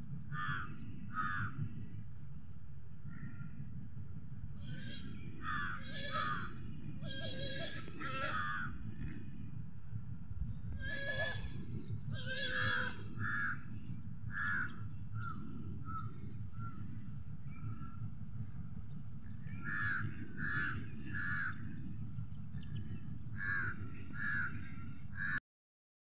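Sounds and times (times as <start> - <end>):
low rumble: 0.0 - 25.4
crows cawing: 0.3 - 1.6, 4.6 - 8.8, 10.8 - 11.5, 12.2 - 13.7, 14.3 - 16.9, 19.6 - 21.8, 23.4 - 25.4.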